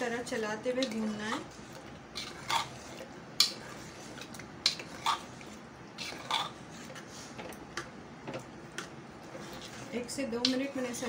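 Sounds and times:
metal spoon scraping a pot: 0.2 - 7.4.

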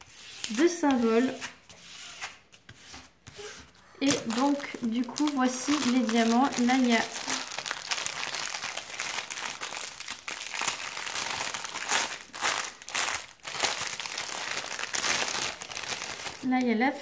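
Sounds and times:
plastic packaging crinkling: 4.0 - 16.8.

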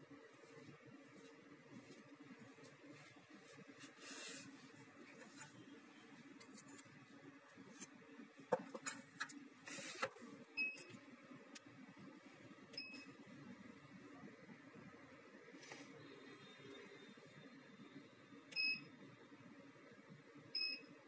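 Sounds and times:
faint clicks and taps: 10.8 - 11.7.

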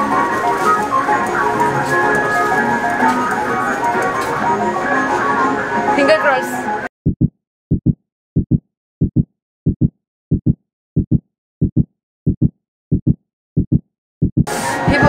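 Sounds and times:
heartbeat thumps: 7.0 - 14.5.

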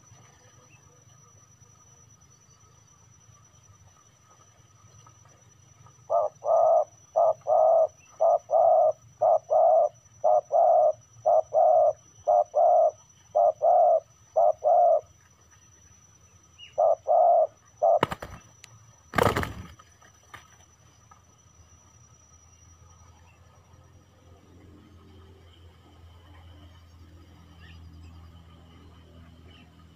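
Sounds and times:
dove cooing: 6.0 - 15.1, 16.7 - 18.4.

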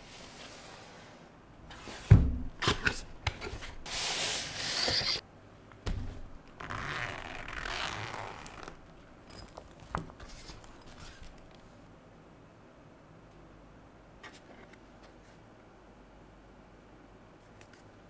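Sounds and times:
fabric case rubbing: 6.1 - 8.8
zipper being drawn open: 6.6 - 8.8.

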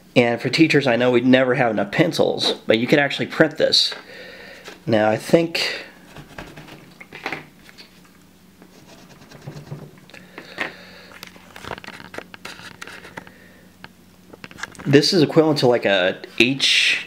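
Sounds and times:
scratchy strokes on paper: 8.7 - 9.8.

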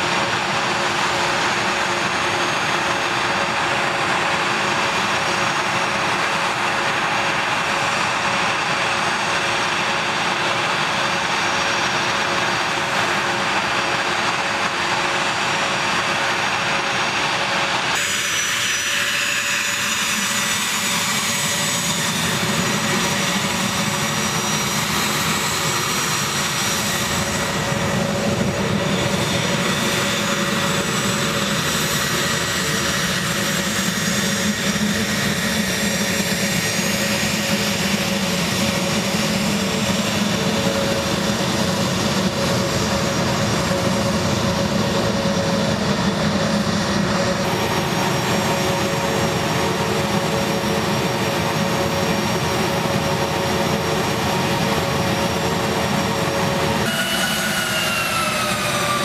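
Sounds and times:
high jet whine: 0.0 - 59.0
jet engines rumbling: 0.0 - 59.0.

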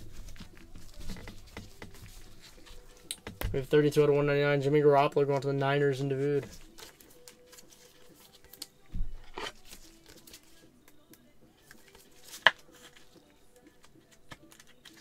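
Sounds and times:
plastic sleeve crinkling: 5.0 - 11.0.

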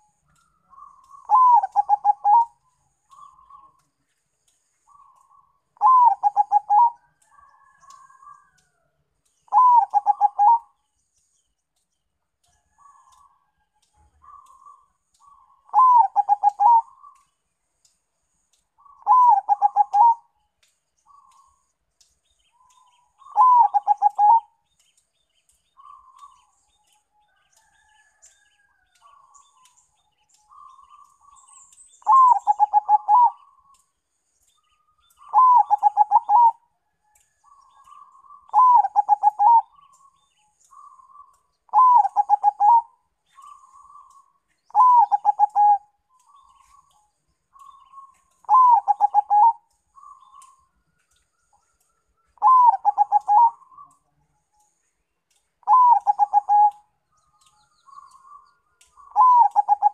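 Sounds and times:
dove cooing song: 0.0 - 3.9, 4.9 - 8.7, 9.5 - 10.8, 12.7 - 13.4, 14.0 - 17.3, 18.8 - 20.3, 22.6 - 24.6, 25.8 - 26.6, 32.0 - 33.8, 35.1 - 36.7, 37.4 - 50.6, 52.3 - 54.0, 55.6 - 56.9, 57.9 - 59.9.

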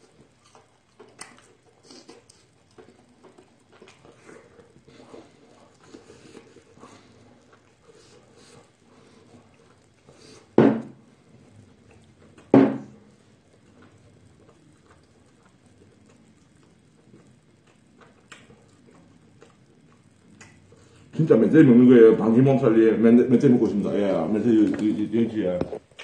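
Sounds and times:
sharp knocks: 10.6 - 11.0.

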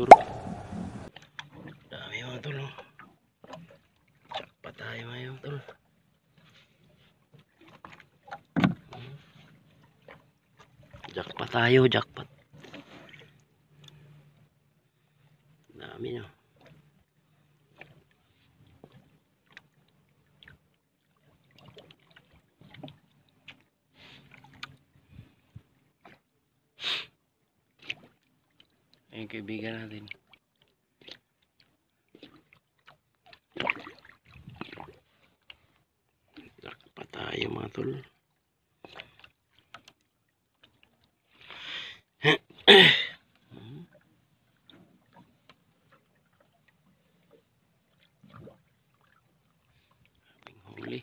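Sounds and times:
sharp sound: 0.0 - 1.1
water splashes: 0.0 - 14.4, 15.0 - 26.3, 27.6 - 51.0
light knocks on boat: 8.6 - 8.8.

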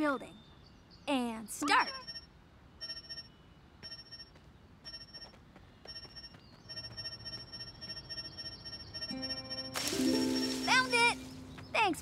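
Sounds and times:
cartoon gadget beeping: 1.6 - 2.2.

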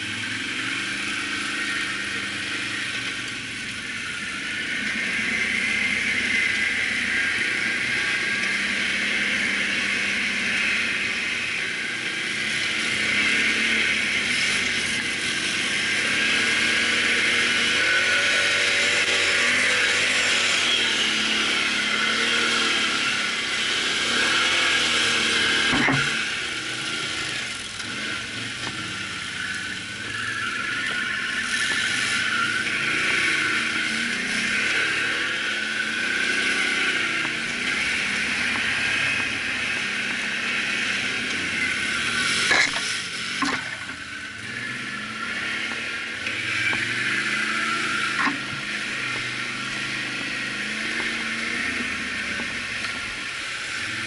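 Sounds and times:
atv engine revving: 0.0 - 54.0.

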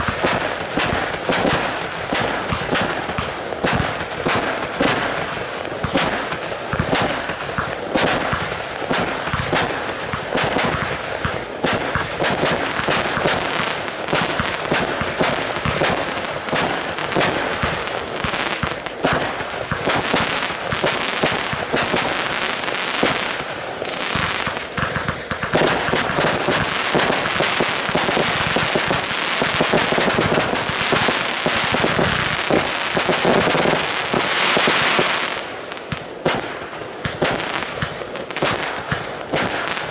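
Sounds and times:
fireworks bangs: 0.0 - 39.9.

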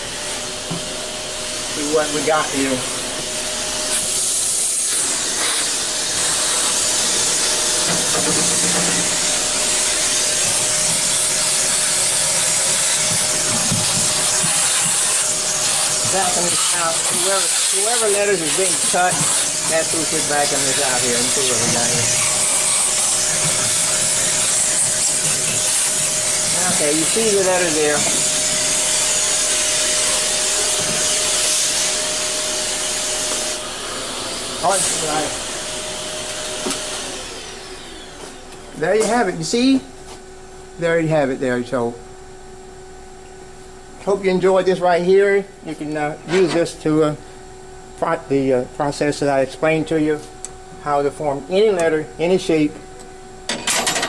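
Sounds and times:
handheld vacuum cleaner running: 0.0 - 39.8.

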